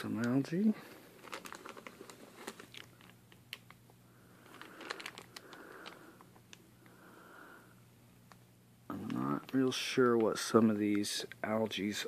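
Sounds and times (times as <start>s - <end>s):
plastic bags crinkling: 0.2s - 6.6s.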